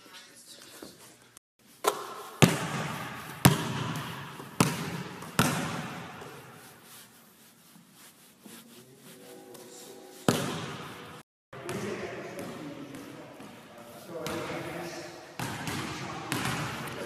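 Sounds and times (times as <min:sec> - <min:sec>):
basketball bouncing on gym floor: 0:01.8 - 0:06.6, 0:10.3 - 0:11.0, 0:11.6 - 0:13.6, 0:15.4 - 0:17.0.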